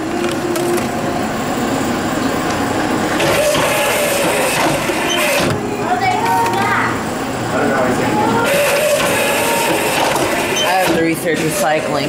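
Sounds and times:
machine mechanism running: 0.0 - 12.0
plastic bottle rattling on rollers: 8.5 - 12.0.

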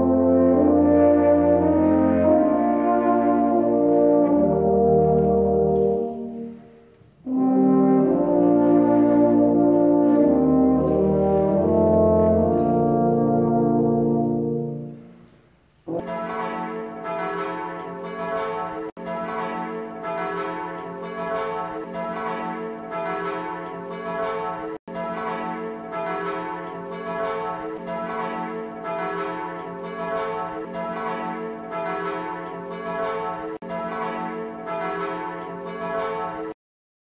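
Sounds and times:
church bells pealing: 16.0 - 36.6.

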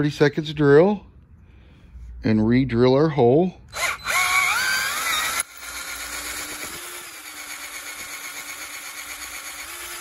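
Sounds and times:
electric drill boring metal: 3.7 - 10.0.

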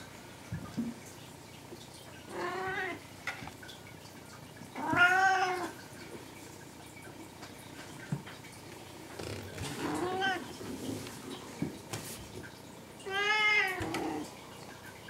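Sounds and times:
cat meowing: 4.8 - 5.7.

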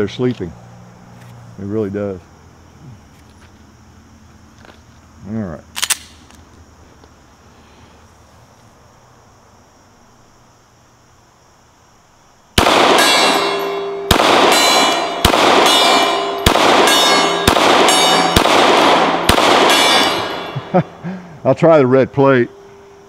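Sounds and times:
pistol shots: 12.6 - 20.7
steel targets ringing: 12.6 - 20.8.

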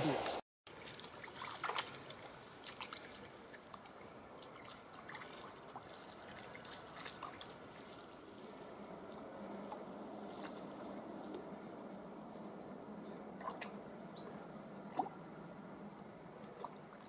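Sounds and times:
dog splashing in water: 0.7 - 8.0, 13.4 - 13.8
water trickling: 0.7 - 11.8, 13.3 - 17.0.

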